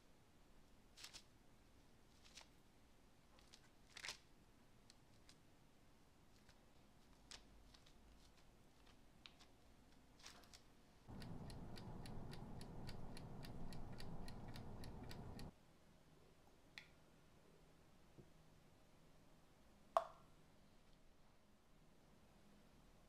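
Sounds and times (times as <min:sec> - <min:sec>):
oven humming: 0:11.1 - 0:15.5
rapid even ticking: 0:11.1 - 0:15.5
wooden spoon clicking in dough: 0:11.1 - 0:15.5.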